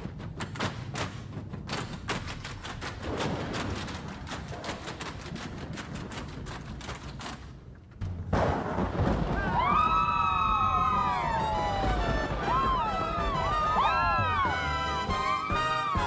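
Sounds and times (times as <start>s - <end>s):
music with wailing high tones: 11.7s - 16.0s.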